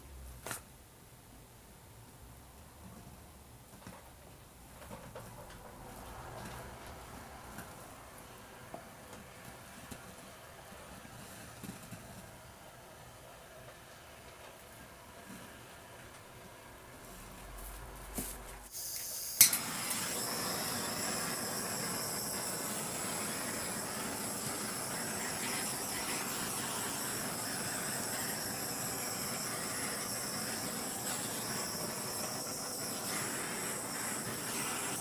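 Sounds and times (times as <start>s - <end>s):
gas torch hissing: 13.9s - 35.0s
gas torch ignition click: 18.7s - 35.0s.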